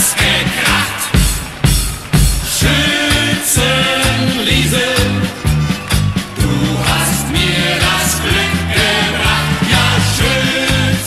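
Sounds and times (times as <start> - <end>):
polka band music: 0.0 - 11.0.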